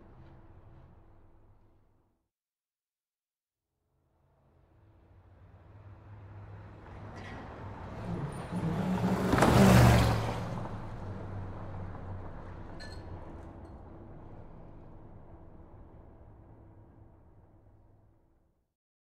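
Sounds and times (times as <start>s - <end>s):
city traffic: 0.0s - 1.8s, 4.7s - 17.7s
vehicle passing close by: 5.2s - 16.0s.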